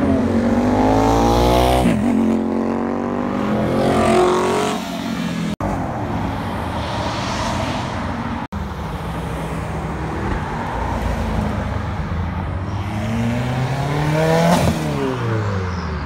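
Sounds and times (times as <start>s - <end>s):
turbocharged car passing: 0.4s - 11.8s.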